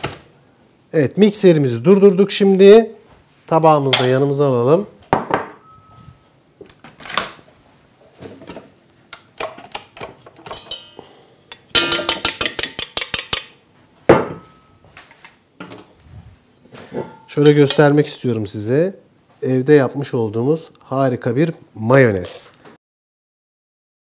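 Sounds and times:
ringing metal clank: 5.5s - 6.2s, 17.0s - 17.8s
metal bowl and whisk clinking: 10.5s - 13.6s, 17.0s - 18.0s.

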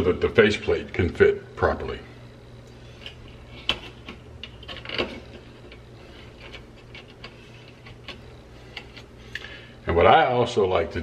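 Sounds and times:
wires clicking against plastic: 3.0s - 9.5s.

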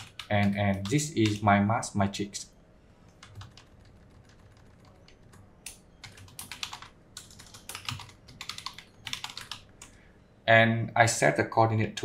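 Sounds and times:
typing on computer keyboard: 0.0s - 1.4s, 3.2s - 10.0s.

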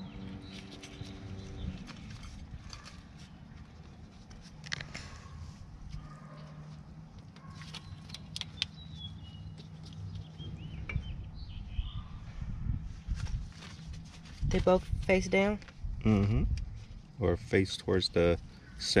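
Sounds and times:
bird chirping: 0.0s - 2.4s, 7.4s - 12.3s.

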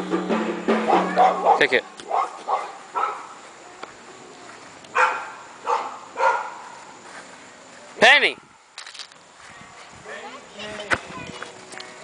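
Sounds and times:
dog barking: 0.9s - 3.3s, 4.9s - 6.7s.

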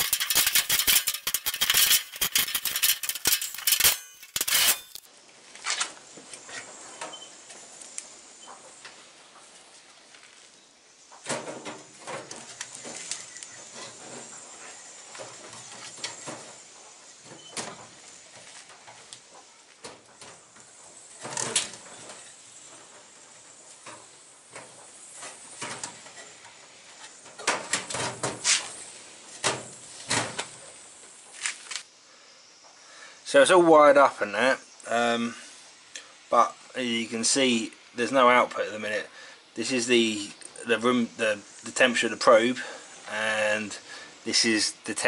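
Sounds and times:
metal box knocking and scraping: 0.0s - 5.0s.

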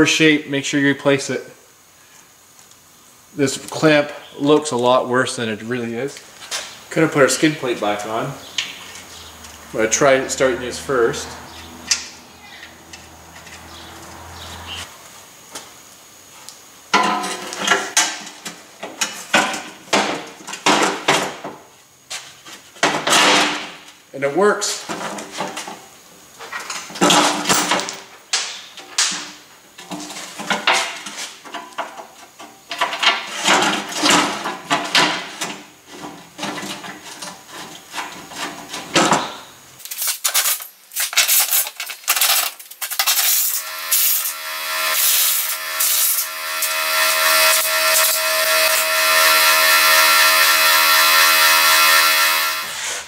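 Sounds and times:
droning tone: 9.6s - 14.9s, 43.2s - 53.0s.

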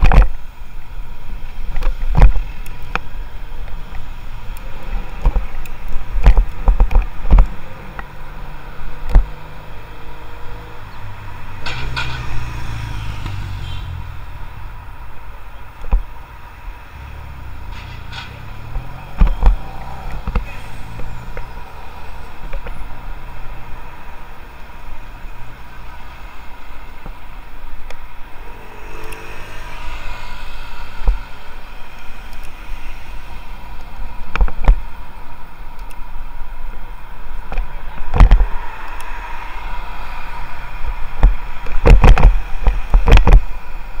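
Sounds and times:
road rumble: 0.0s - 44.0s
vehicle passing: 7.5s - 34.1s, 37.7s - 41.8s
wind noise: 39.7s - 44.0s.

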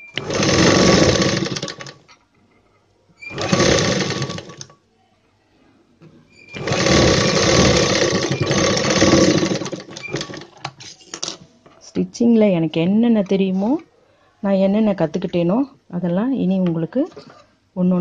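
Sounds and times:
sewing machine running: 0.0s - 2.0s, 3.2s - 4.7s, 6.5s - 10.6s.

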